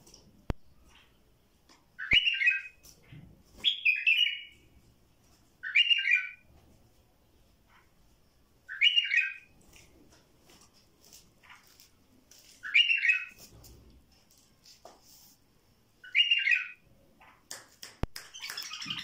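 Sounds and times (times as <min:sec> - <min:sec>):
bird calling: 0:18.3 - 0:19.0.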